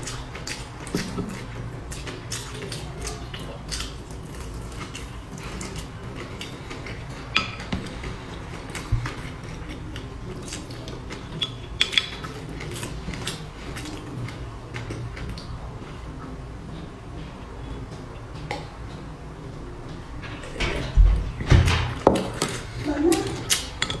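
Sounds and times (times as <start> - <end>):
person chewing: 0.0 - 16.3.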